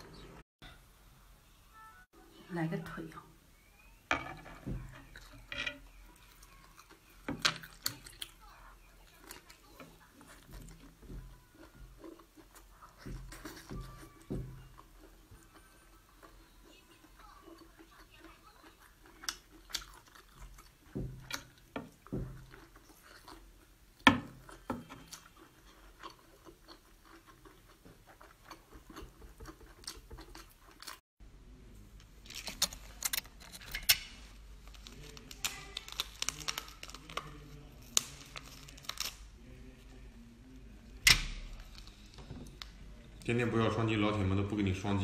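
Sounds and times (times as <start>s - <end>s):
chewing with clicks and smacks: 6.0s - 31.0s
shell crunching and tearing: 32.2s - 39.8s.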